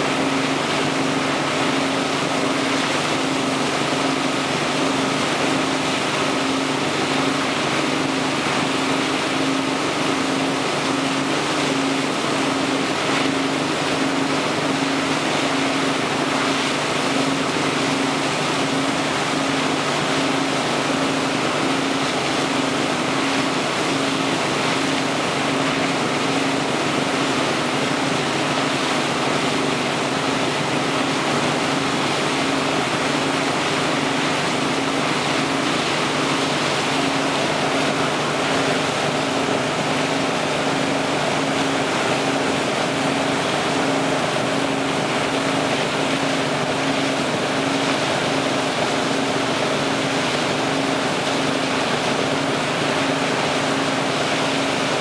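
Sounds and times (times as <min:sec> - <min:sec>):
boat engine humming: 0:00.0 - 0:55.0
churning wake rushing: 0:00.0 - 0:55.0.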